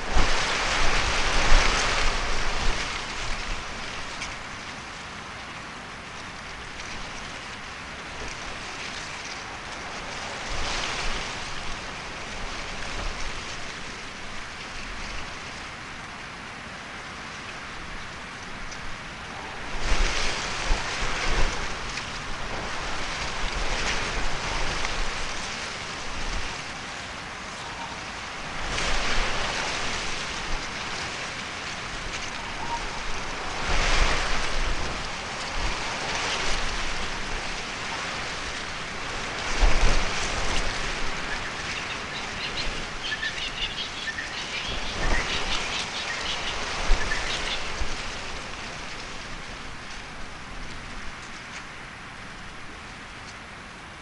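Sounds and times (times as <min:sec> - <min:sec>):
steady rain falling: 0:00.0 - 0:54.0
bird chirps: 0:41.3 - 0:47.7.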